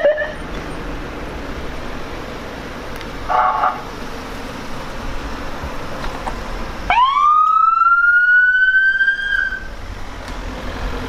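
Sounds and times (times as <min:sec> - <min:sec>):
police siren wail: 0:00.0 - 0:00.4, 0:06.9 - 0:09.7
car engine: 0:00.0 - 0:11.0
road noise: 0:00.0 - 0:11.0.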